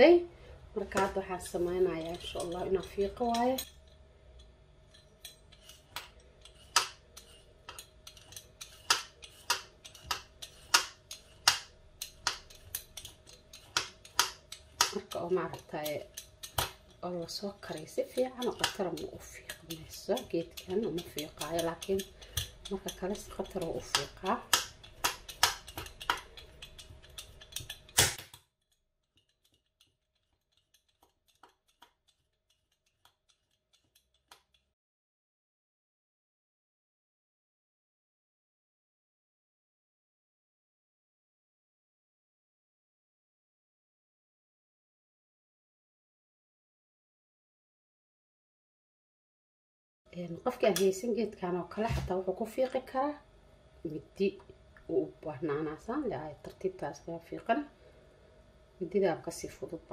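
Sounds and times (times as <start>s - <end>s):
vegetable peeler scraping carrot: 1.0s - 3.6s, 5.4s - 28.2s, 29.1s - 34.6s.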